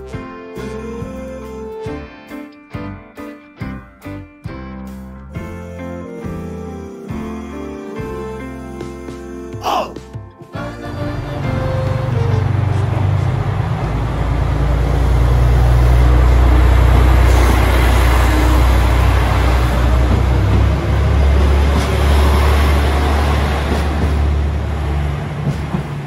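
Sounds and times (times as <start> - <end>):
train diesel engines droning: 10.6 - 26.0.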